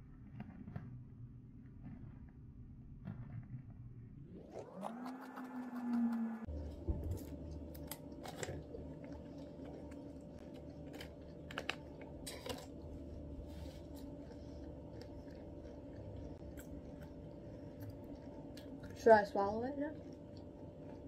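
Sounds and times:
steady low hum: 0.0 - 21.0
peanuts being chewed: 4.5 - 21.0.

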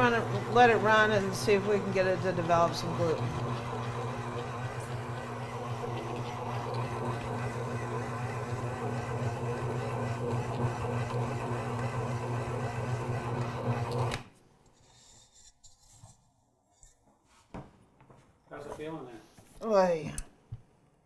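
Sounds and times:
stand mixer motor running: 0.0 - 14.2.

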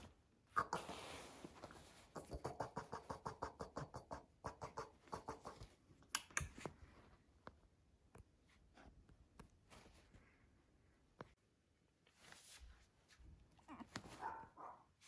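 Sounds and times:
puppy making soft mouth sounds: 2.1 - 6.7.

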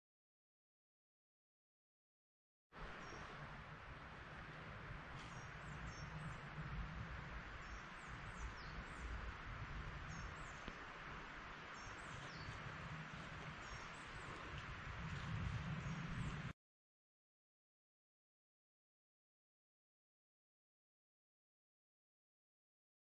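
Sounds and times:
small birds chirping: 2.9 - 3.4, 5.0 - 16.5.

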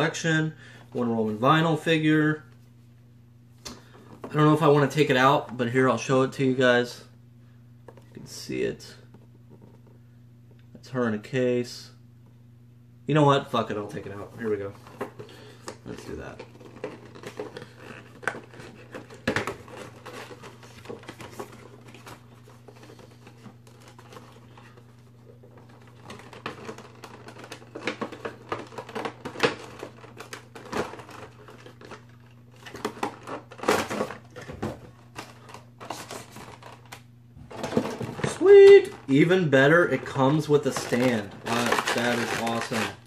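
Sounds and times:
cardboard and plastic crinkling: 13.8 - 43.0.

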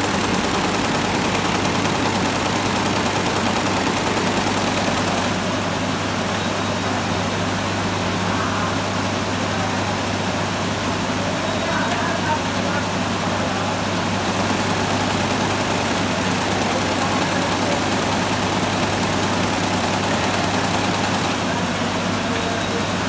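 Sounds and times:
embroidery machine stitching: 0.0 - 5.4, 14.2 - 21.5.

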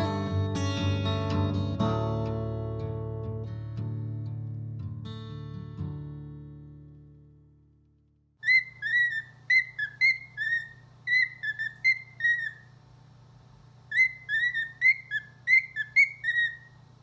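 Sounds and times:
cockatiel whistling: 8.4 - 12.7, 13.9 - 16.8.

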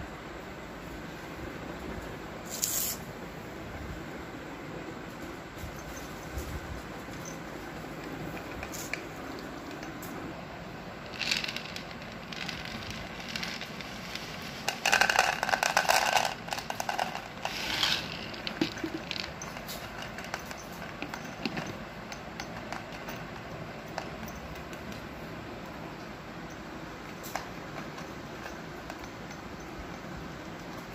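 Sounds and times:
cat crunching dry food: 11.0 - 25.0
kibble rattling into plastic bowl: 11.1 - 24.9.

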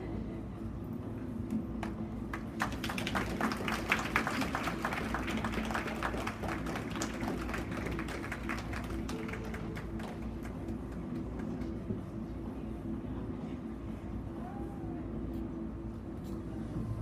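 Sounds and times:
audience clapping: 1.8 - 11.9.

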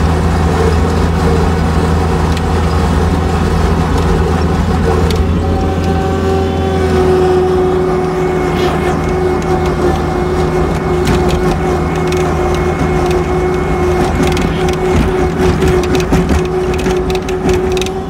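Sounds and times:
skid steer engine whining: 0.0 - 18.0
rattles and knocks: 8.9 - 18.0.

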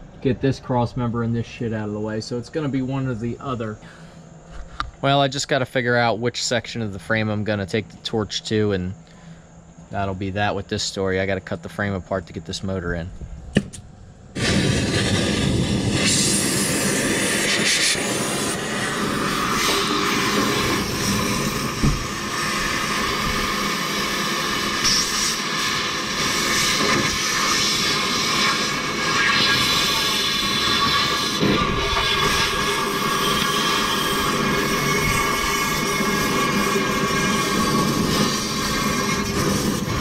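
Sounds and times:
cutting torch hissing: 13.5 - 40.0.

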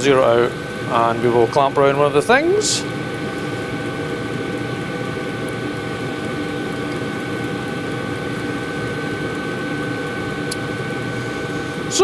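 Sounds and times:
heater humming: 0.0 - 12.0.

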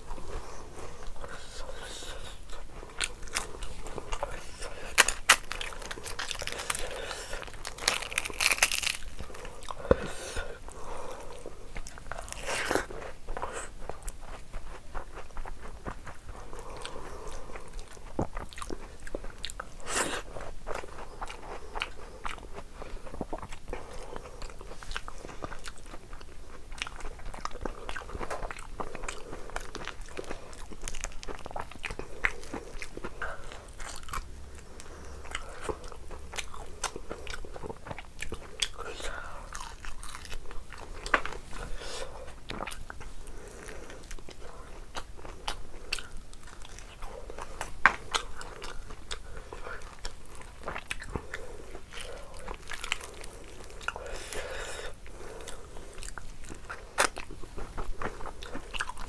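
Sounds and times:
person chewing: 0.0 - 59.0.

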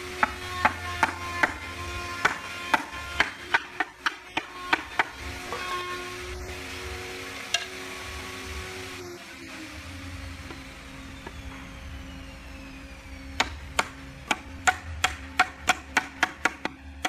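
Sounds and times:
steady low hum: 8.0 - 17.0.

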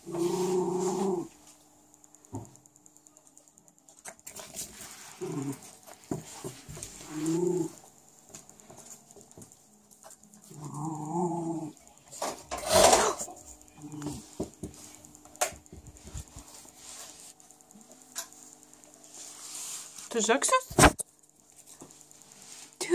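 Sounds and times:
dogs growling: 0.0 - 1.4, 5.0 - 5.8, 6.8 - 7.9, 10.4 - 11.9, 12.5 - 14.4.

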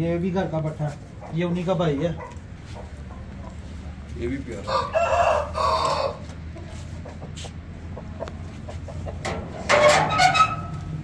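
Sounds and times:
roosters crowing: 4.5 - 6.6.

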